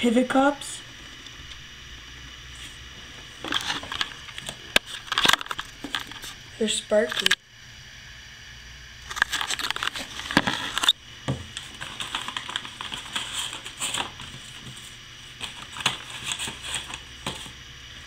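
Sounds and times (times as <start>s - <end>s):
paper packet crinkling: 3.4s - 6.4s, 9.1s - 17.5s.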